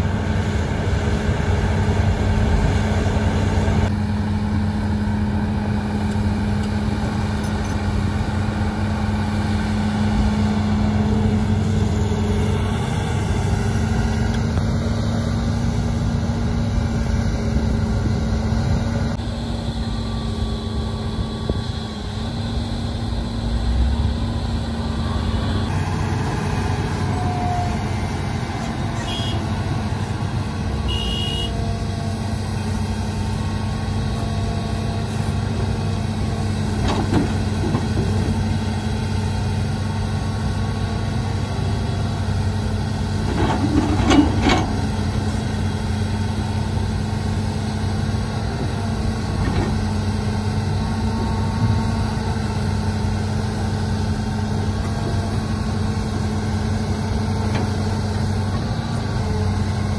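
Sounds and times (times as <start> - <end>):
heavy diesel engines running: 0.0 - 59.9
excavator bucket knocking and scraping: 36.8 - 38.5, 43.2 - 45.1.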